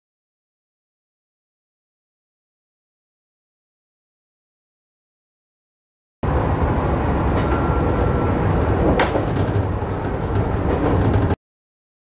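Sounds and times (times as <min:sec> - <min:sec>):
train wheels rumbling on rail: 0:06.2 - 0:11.4.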